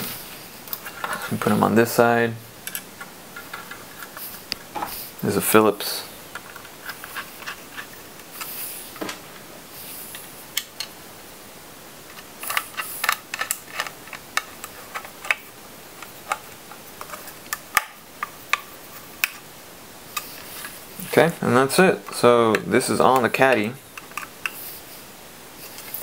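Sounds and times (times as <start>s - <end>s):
handling rustles: 6.3s - 10.6s.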